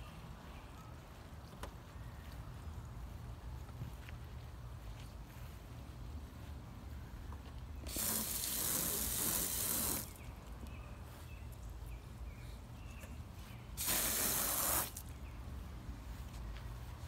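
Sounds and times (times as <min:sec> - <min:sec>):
hose nozzle spraying water: 0:07.8 - 0:10.2, 0:13.8 - 0:15.0.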